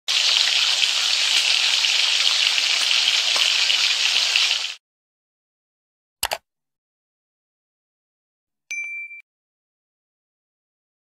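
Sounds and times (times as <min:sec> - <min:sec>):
food sizzling in hot oil: 0:00.0 - 0:04.8.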